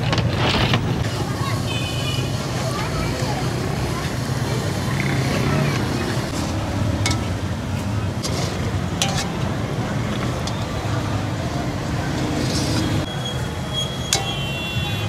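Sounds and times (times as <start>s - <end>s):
metal ladle scraping iron pan: 6.3s - 7.6s, 8.2s - 9.6s, 12.4s - 14.6s.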